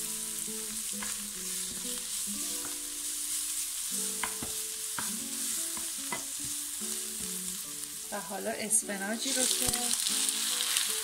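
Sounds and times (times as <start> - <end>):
onions sizzling in oil: 0.0 - 11.0
spatula tapping and scraping pan: 4.1 - 6.6.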